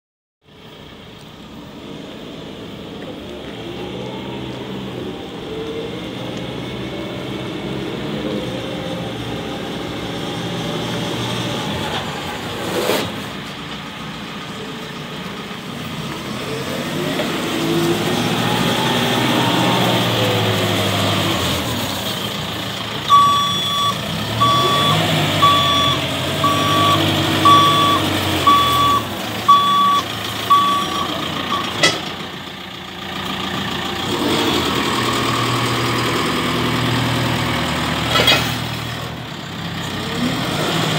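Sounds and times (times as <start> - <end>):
diesel engine revving: 0.5 - 40.9
reversing alarm beeps: 23.1 - 31.7.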